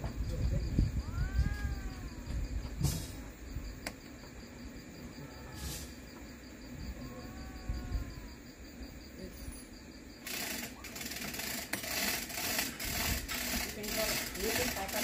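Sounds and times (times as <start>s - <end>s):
faint insects chirping: 0.0s - 15.0s
hand hoist rattling metallic clicks: 10.2s - 15.0s.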